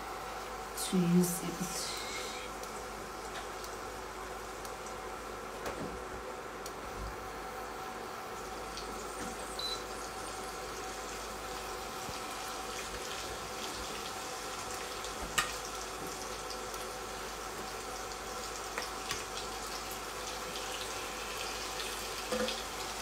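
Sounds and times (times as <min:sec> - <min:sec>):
chicken sizzling in hot oil: 0:07.5 - 0:23.0.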